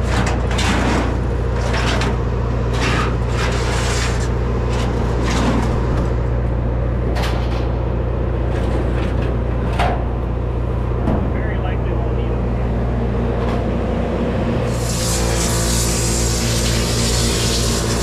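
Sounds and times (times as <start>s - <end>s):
scrapes and clatters: 0.0s - 6.1s
machinery humming: 0.0s - 18.0s.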